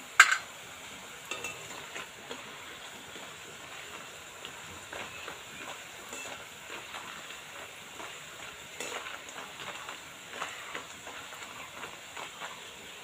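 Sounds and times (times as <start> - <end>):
dough frying in sizzling oil: 0.0 - 13.0
metal ladle scraping pan: 1.3 - 2.8, 5.0 - 7.3, 8.7 - 11.6.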